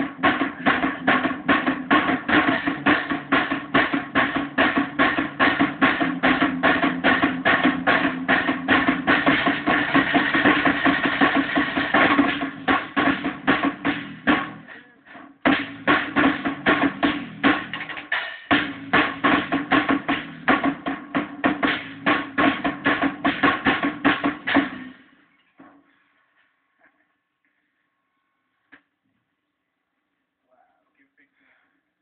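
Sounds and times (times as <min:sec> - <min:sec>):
drum kit playing: 0:00.0 - 0:25.2
guitar: 0:00.0 - 0:25.9.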